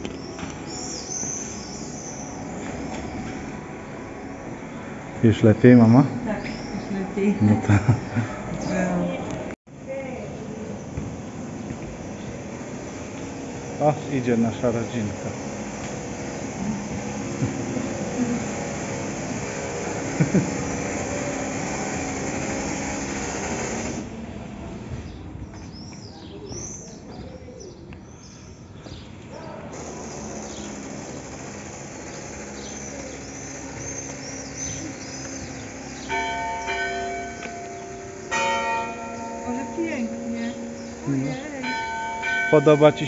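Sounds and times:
birds chirping: 0:00.0 - 0:09.6, 0:10.3 - 0:18.7, 0:25.0 - 0:43.0
church bells ringing: 0:02.3 - 0:08.2, 0:13.2 - 0:20.2, 0:35.4 - 0:43.0.

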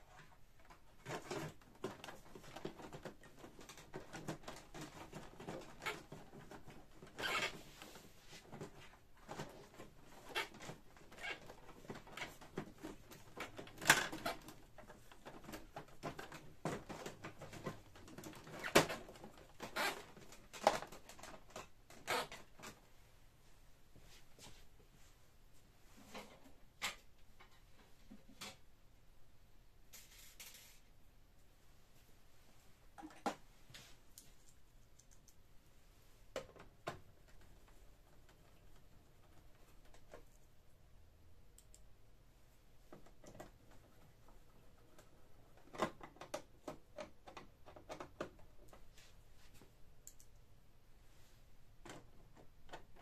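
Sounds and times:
plastic parts clicking and scraping: 0:00.1 - 0:22.8.

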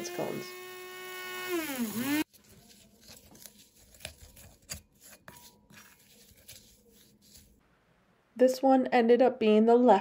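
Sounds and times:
spoon scraping in bowl: 0:03.6 - 0:07.6.

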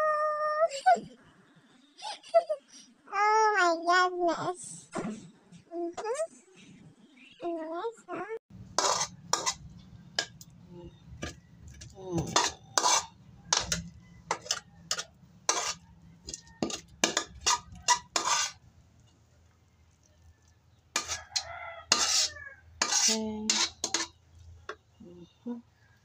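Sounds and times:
metal spatula scraping a wok: 0:08.5 - 0:19.1, 0:20.9 - 0:24.8.

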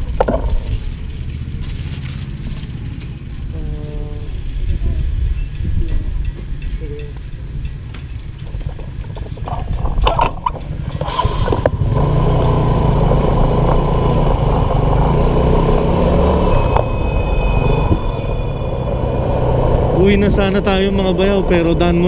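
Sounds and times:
small motorcycle engine: 0:09.4 - 0:22.0.

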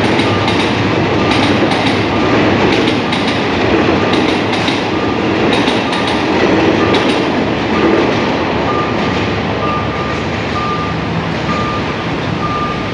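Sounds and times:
road traffic noise: 0:00.0 - 0:12.9
train wheels clacking: 0:00.0 - 0:12.9
reversing alarm beeps: 0:00.2 - 0:00.6, 0:01.2 - 0:02.4, 0:04.9 - 0:05.2, 0:05.8 - 0:06.2, 0:06.8 - 0:07.1, 0:08.7 - 0:09.0, 0:09.6 - 0:12.9.

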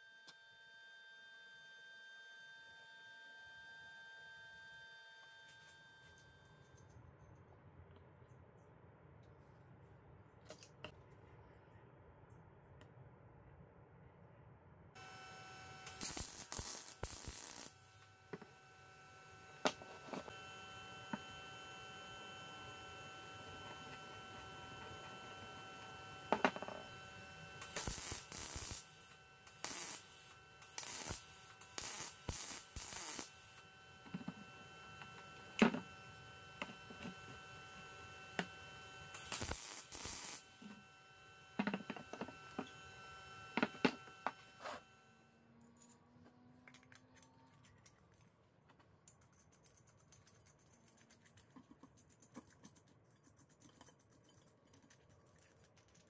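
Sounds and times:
welding arc crackling: 0:15.0 - 0:40.8
electrical hum: 0:15.0 - 0:45.8.

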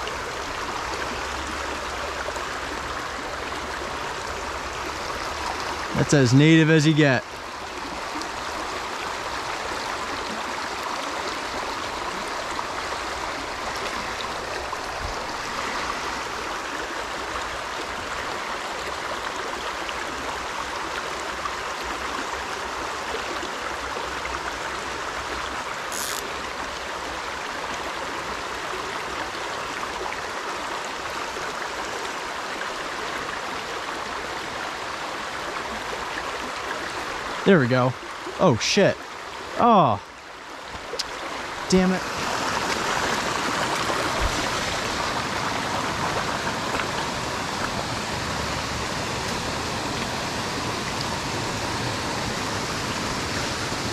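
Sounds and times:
brook rushing over stones: 0:41.7 - 0:52.2.

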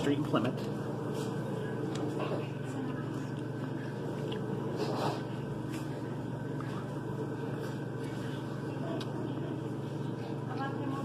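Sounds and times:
indoor room hum: 0:00.0 - 0:11.0
soft clicks of eating: 0:03.1 - 0:04.5, 0:08.9 - 0:09.2.

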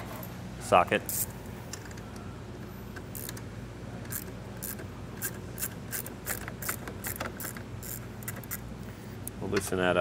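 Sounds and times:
hand ratchet clicking: 0:04.1 - 0:08.6.

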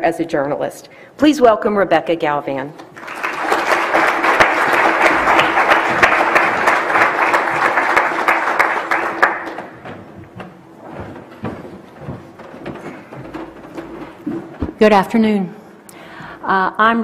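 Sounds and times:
audience applauding: 0:02.9 - 0:09.9
faint knocks: 0:09.5 - 0:15.0.

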